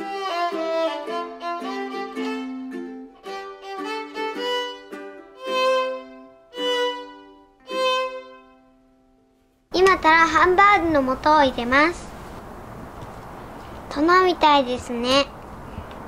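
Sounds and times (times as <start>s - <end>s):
light violin-led tune: 0.0s - 8.9s.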